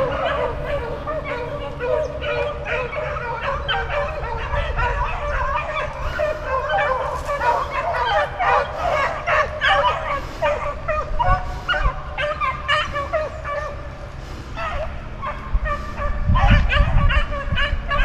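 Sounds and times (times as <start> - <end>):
pack of beagles baying: 0.0 - 18.0.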